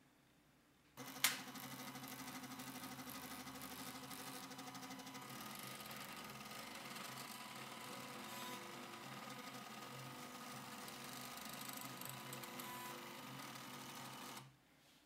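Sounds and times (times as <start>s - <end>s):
motor whirring buzz: 1.0s - 14.5s.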